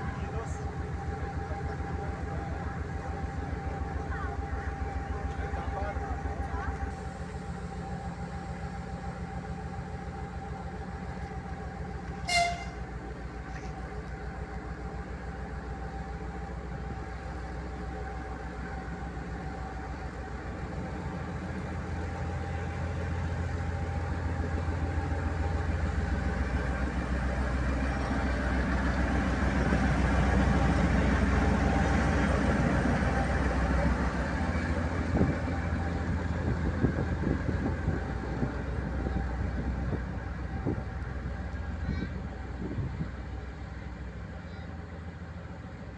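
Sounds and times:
diesel locomotive engine droning: 0.0 - 45.9
high-pitched horn toot: 12.2 - 12.8.

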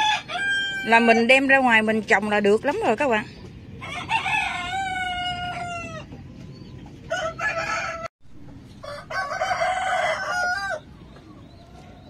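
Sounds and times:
rooster crowing: 0.0 - 1.3, 3.8 - 6.1, 7.1 - 8.1, 8.8 - 11.0.

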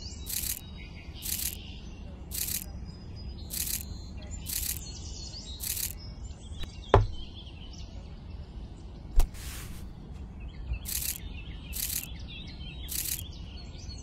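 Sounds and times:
small birds chirping: 0.0 - 14.0
sharp knocks: 6.6 - 7.3
short rustles: 9.2 - 10.0.

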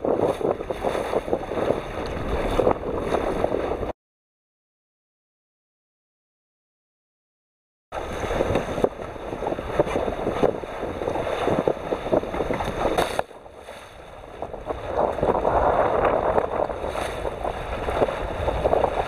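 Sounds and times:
choppy water splashing: 0.0 - 3.9, 8.0 - 19.0
wind buffeting microphone: 0.0 - 3.9, 8.0 - 19.0.

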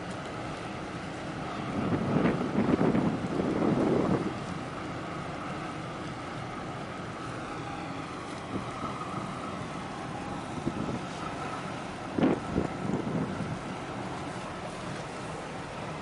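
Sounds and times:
faint steady whine: 0.0 - 16.0
ship engine drone: 0.0 - 16.0
wind on microphone: 1.6 - 4.5, 8.4 - 13.9.

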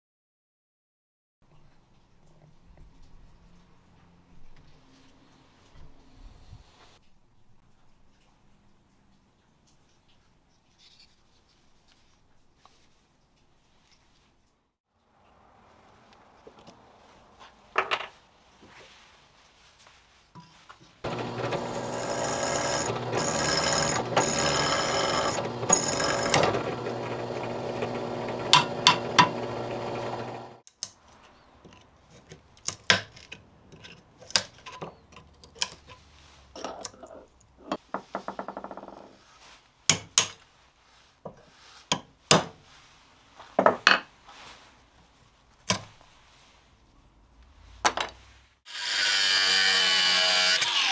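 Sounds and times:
drill press drilling into steel: 21.1 - 30.6.

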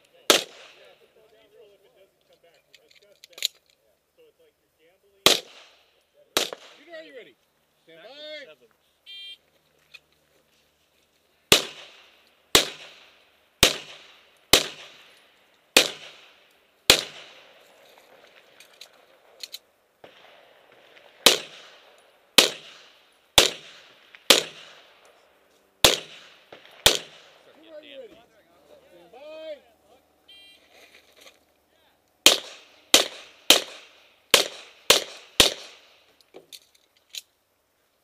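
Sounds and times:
handgun shots: 11.5 - 15.1, 15.8 - 16.3, 16.9 - 17.4, 22.4 - 24.8, 25.8 - 27.3, 32.2 - 35.9.

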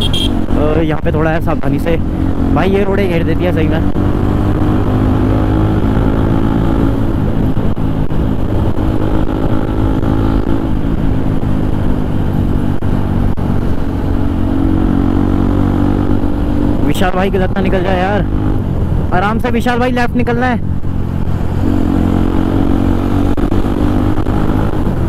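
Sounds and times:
motorcycle engine running: 0.0 - 19.1.

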